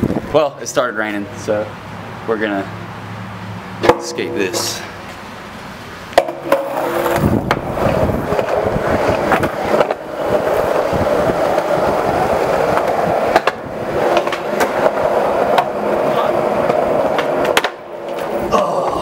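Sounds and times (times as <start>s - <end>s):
skateboard wheels rolling on concrete: 0.0s - 19.0s
sharp clack: 3.8s - 4.9s
skateboard knocks: 6.2s - 10.1s, 12.6s - 15.8s, 16.6s - 18.4s.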